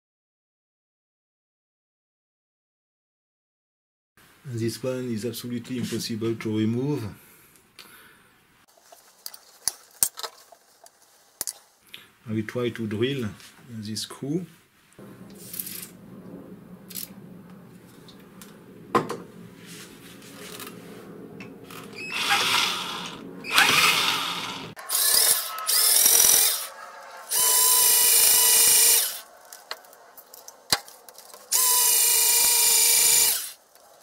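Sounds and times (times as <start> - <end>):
power drill drilling metal: 22.0 - 26.7, 27.3 - 29.2, 31.5 - 33.6.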